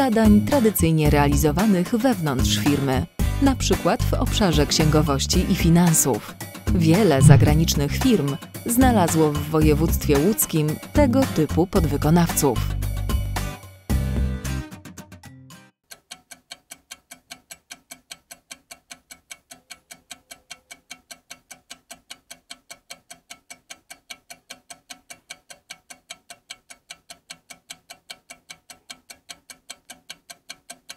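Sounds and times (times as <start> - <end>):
rapid clock ticking: 15.9 - 30.9.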